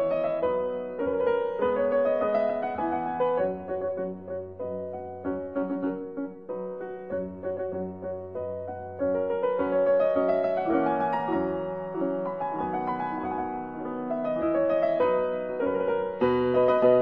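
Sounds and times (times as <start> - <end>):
gentle keyboard music: 0.0 - 17.0.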